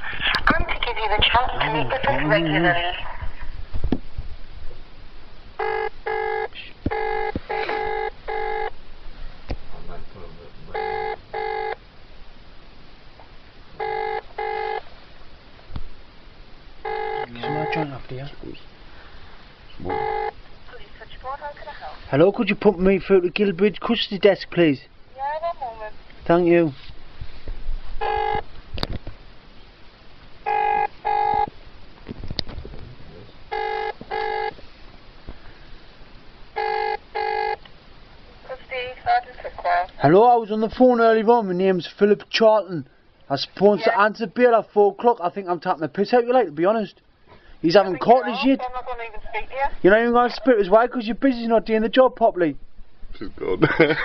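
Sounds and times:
telephone ringing tone: 5.6 - 8.7, 10.8 - 11.8, 13.8 - 14.8, 16.8 - 17.9, 19.9 - 20.4, 28.0 - 28.4, 30.5 - 31.5, 33.5 - 34.6, 36.6 - 37.6.

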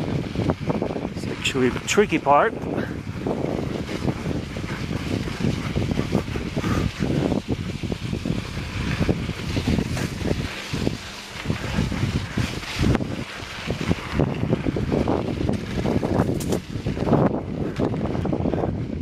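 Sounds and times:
wind buffeting microphone: 0.0 - 19.0
bike knocks and rattles: 15.0 - 18.8.

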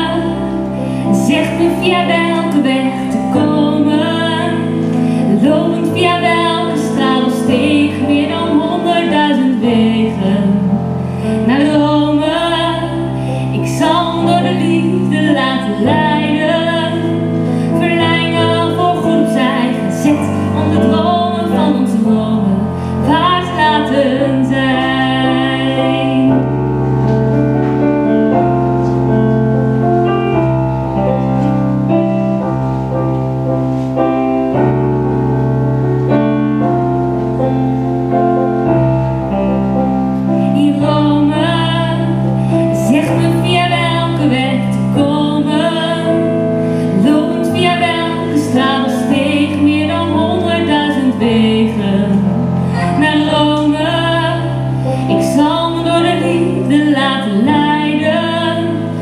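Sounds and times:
woman singing pop ballad: 0.0 - 26.4, 40.4 - 59.0
digital piano chords: 0.0 - 59.0.

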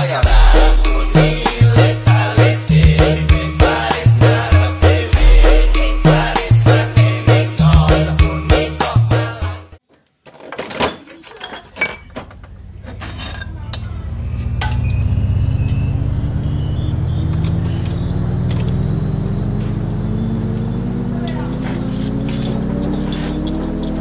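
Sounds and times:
hand tools clinking on metal: 10.5 - 15.1, 17.4 - 19.1, 20.7 - 24.0
motor drone rising in pitch: 13.6 - 24.0.

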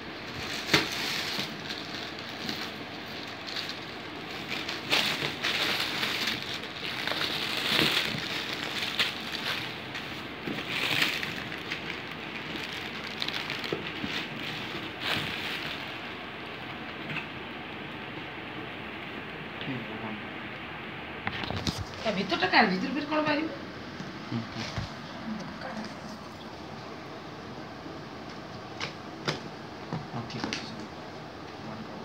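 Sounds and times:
packaging rustling and crinkling: 0.2 - 17.3, 21.3 - 22.2.

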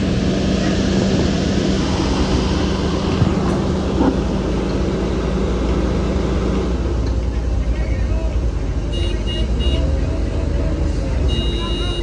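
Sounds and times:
heavy diesel engine running: 0.0 - 12.0.

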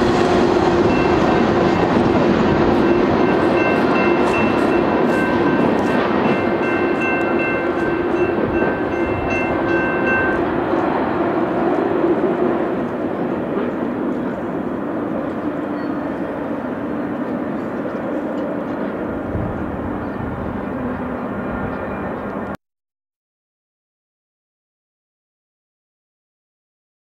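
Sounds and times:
repeating high ringing tone: 0.0 - 11.0
freight train rumble: 0.0 - 22.6.

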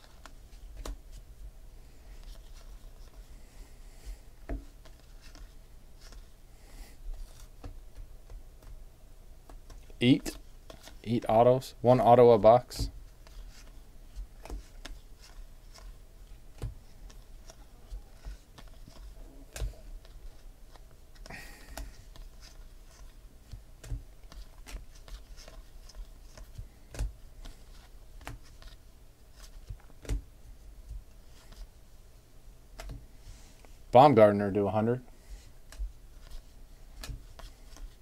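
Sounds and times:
cards clicking and tapping: 0.0 - 1.0, 14.4 - 28.8, 32.8 - 33.0, 37.0 - 38.0
cards sliding and rustling: 0.0 - 1.2, 1.9 - 3.4, 4.0 - 8.0, 9.5 - 11.0, 13.1 - 30.2, 31.1 - 31.7, 35.2 - 38.0.

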